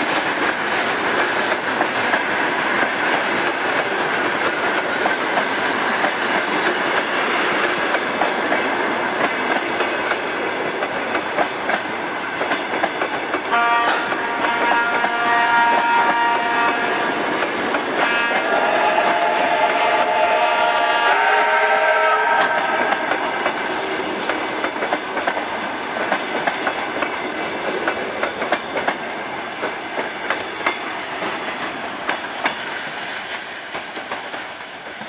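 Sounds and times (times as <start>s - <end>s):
train wheels clicking over rail joints: 0.0s - 35.0s
train horn: 13.5s - 17.3s, 18.0s - 23.3s.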